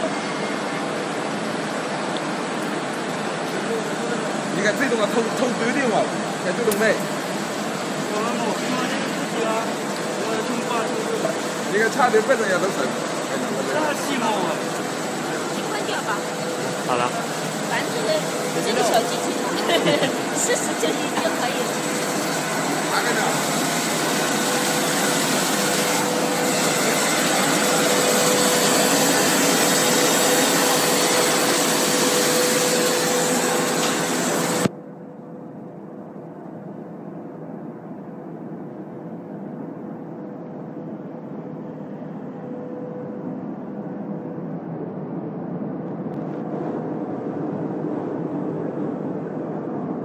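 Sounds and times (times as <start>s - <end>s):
machine running: 0.0s - 34.8s
faint steady whine: 0.0s - 50.0s.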